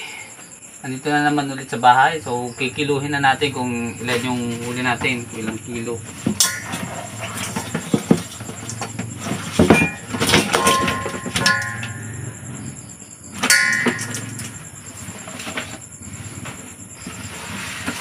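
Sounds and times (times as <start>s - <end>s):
fish and container clattering in basin: 4.1s - 12.4s, 13.4s - 15.9s
metal basin ringing: 6.4s - 7.8s, 8.6s - 12.7s, 13.4s - 14.8s.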